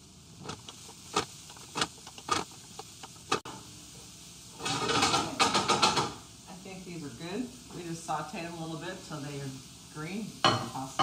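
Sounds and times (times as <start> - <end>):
wooden spatula scraping a skillet: 4.5 - 6.2.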